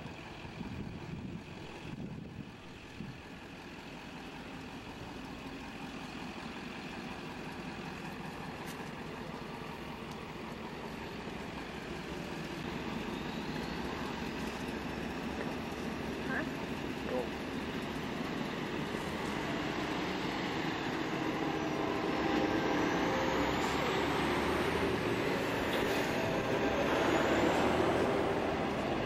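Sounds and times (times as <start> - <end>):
vehicle engine running: 0.0 - 29.0.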